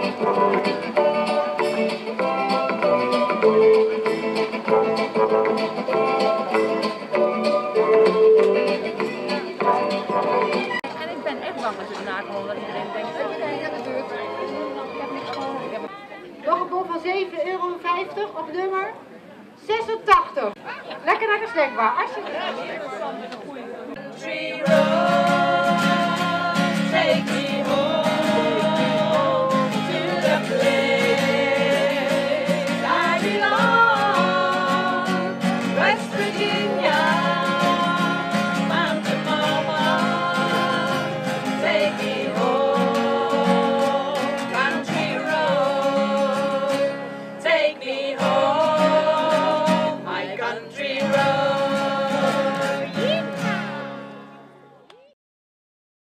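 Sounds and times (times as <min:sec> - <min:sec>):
acoustic guitars: 0:00.0 - 0:17.5, 0:24.0 - 0:54.8
women singing together: 0:24.0 - 0:53.0.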